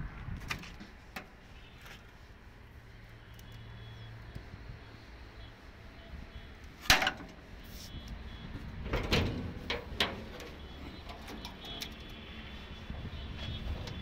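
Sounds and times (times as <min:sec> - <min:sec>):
steel car bonnet clunking: 0:06.8 - 0:07.4, 0:08.6 - 0:12.1.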